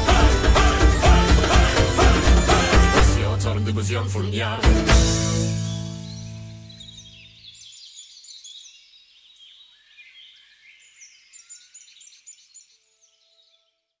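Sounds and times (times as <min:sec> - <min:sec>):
end music: 0:00.0 - 0:06.8
birds chirping: 0:00.9 - 0:13.7.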